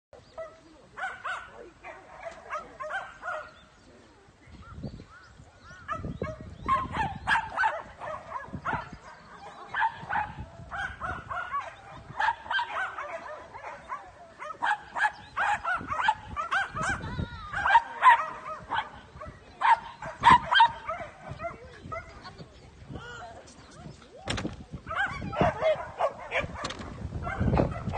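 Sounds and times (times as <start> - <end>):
dog barking and yipping: 5.9 - 22.1, 24.9 - 27.9.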